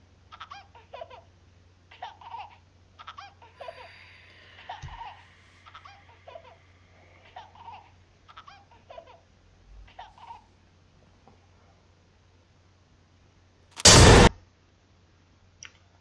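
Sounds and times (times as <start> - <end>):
low hum: 3.5 - 8.2, 13.8 - 14.3.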